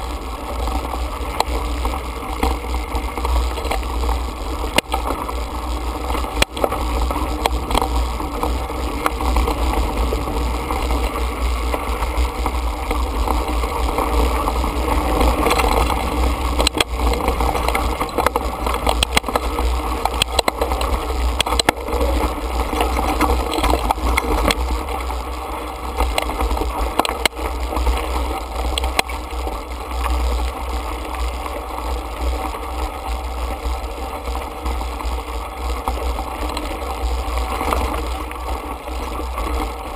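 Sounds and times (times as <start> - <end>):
bike rattles and knocks: 0.0 - 31.6
bike tyre noise: 0.0 - 39.9
wind rumble on microphone: 0.0 - 39.9.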